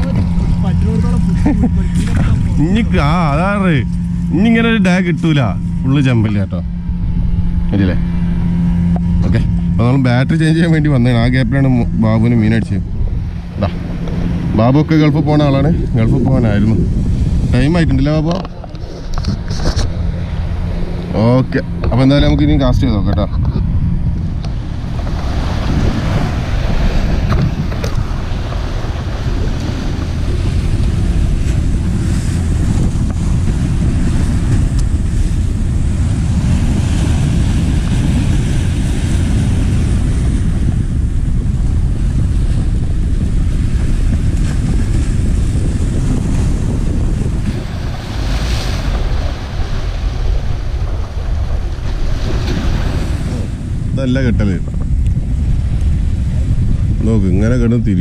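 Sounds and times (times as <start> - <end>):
wind buffeting microphone: 0.0 - 58.0
waves breaking against rocks: 24.4 - 56.9.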